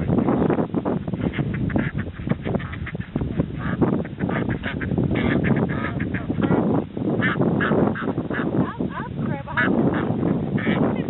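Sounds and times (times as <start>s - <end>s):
ducks quacking: 1.1s - 11.0s
geese honking: 1.2s - 11.0s.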